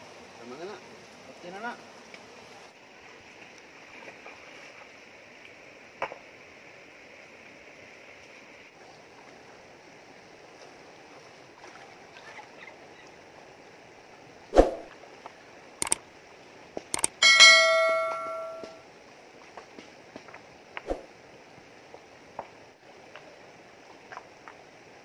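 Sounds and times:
notification bell ding: 17.0 - 18.8
sharp clicks: 17.0 - 18.8.

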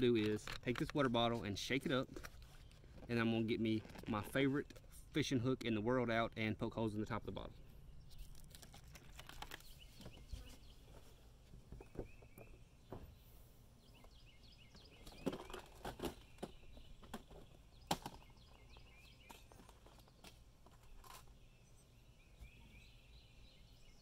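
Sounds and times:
birds chirping: 4.3 - 24.0
plastic boxes clicking and knocking: 15.0 - 18.3.

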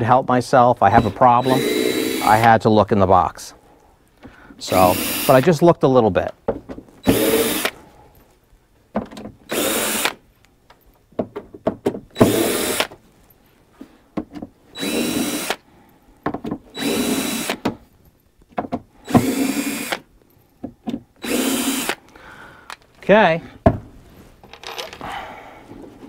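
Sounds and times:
cordless drill whining: 0.9 - 2.5, 4.7 - 5.5, 7.0 - 7.8, 9.5 - 10.2, 12.2 - 12.9, 14.7 - 15.7, 16.7 - 17.7, 19.0 - 20.1, 21.2 - 22.1.

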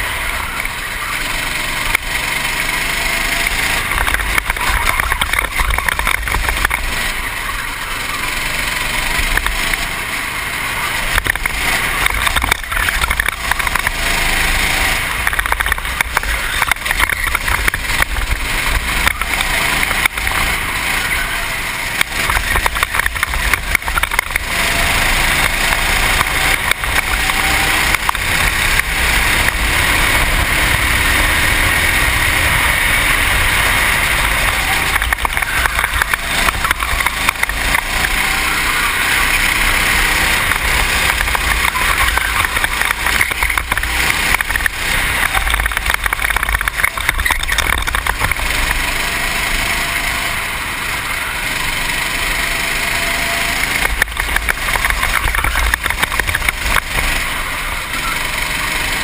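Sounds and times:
kart engine running hard: 0.0 - 59.0
other kart engines: 0.0 - 59.0.

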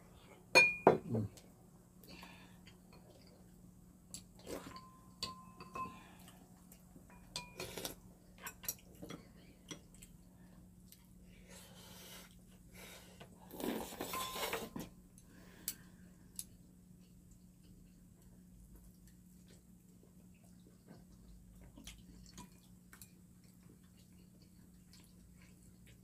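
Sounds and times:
faint steady hum: 0.0 - 26.0
chewing and eating noises: 1.3 - 5.0, 5.9 - 26.0
utensils clinking on ceramic bowls: 4.7 - 6.0, 7.1 - 7.6, 14.1 - 14.9.

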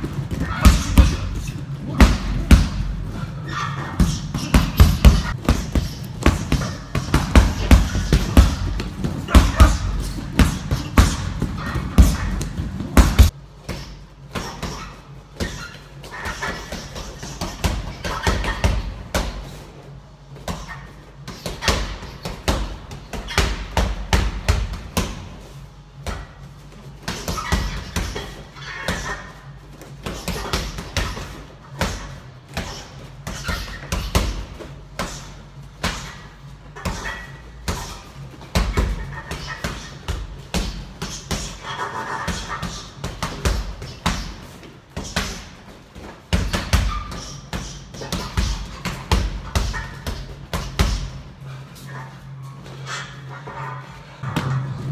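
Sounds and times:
gloves punching heavy bag: 4.0 - 14.9.

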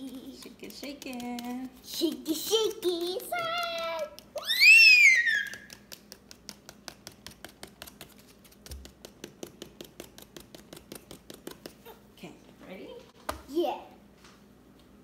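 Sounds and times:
child squealing: 4.4 - 5.7.

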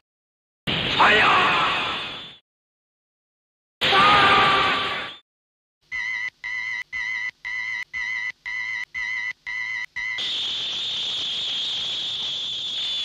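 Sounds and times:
hissing blast with high tone: 10.2 - 13.0.

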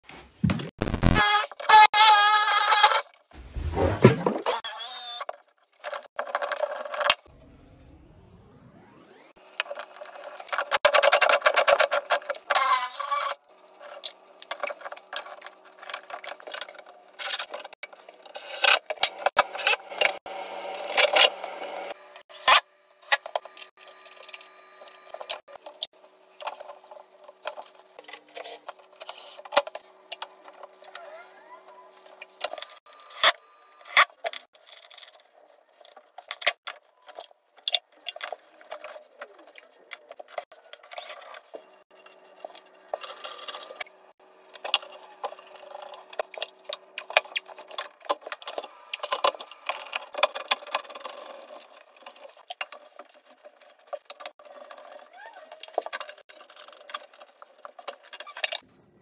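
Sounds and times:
tool and pipe clicks and scrapes: 44.5 - 58.6.

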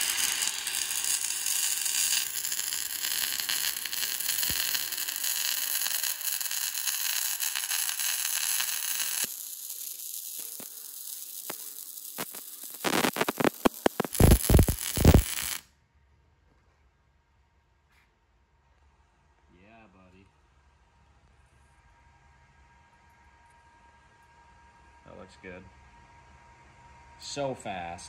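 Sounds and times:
welding arc hiss and crackle: 0.0 - 15.6.

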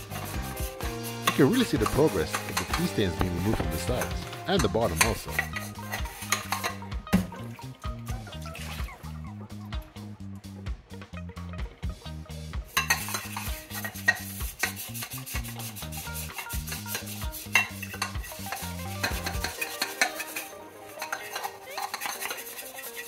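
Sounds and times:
brush scrubbing metal cup: 0.0 - 6.8, 12.7 - 23.0
low background music: 0.0 - 23.0.

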